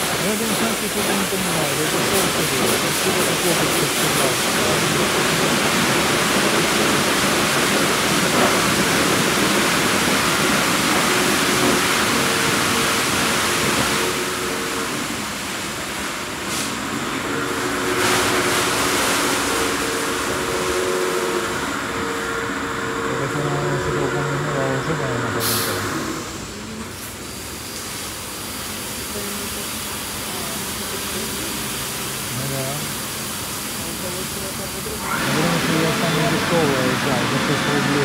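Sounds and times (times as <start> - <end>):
rotating car wash brushes: 0.0 - 10.0.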